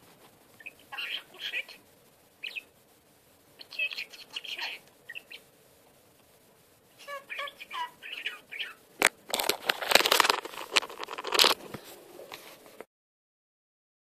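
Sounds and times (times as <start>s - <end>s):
budgerigar chattering: 0.6s - 1.8s, 2.4s - 2.7s, 3.6s - 5.5s, 7.0s - 8.8s
scratchy rustling and clicking: 9.0s - 12.9s.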